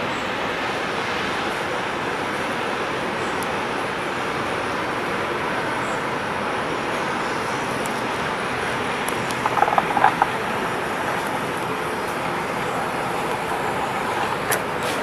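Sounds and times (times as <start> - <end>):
boat engine rushing drone: 0.0 - 15.0.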